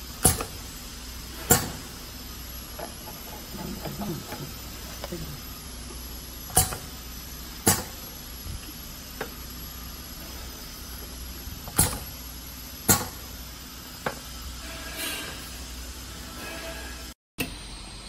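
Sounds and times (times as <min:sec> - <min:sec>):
pneumatic machine clacks: 0:00.0 - 0:05.2, 0:06.4 - 0:09.4, 0:10.2 - 0:13.4
steady machine hum: 0:00.0 - 0:18.0
air hiss: 0:11.8 - 0:17.2.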